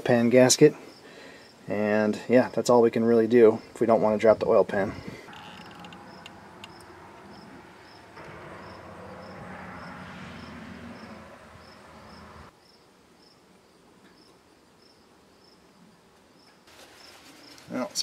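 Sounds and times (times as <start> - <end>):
crickets chirping: 5.2 - 15.7, 16.4 - 17.6
steady rushing noise: 5.5 - 12.5.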